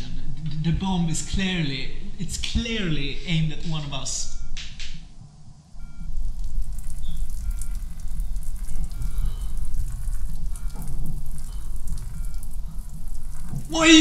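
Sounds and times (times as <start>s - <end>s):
urine splashing on floor: 6.1s - 13.8s.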